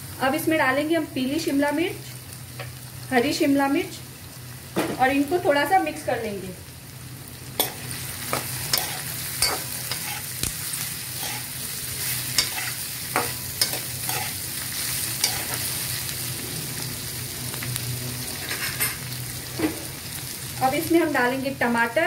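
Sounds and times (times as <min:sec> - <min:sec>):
vegetables sizzling in hot oil: 0:00.0 - 0:22.0
metal spoon scraping pan: 0:07.6 - 0:10.4, 0:11.2 - 0:14.4, 0:15.2 - 0:15.7.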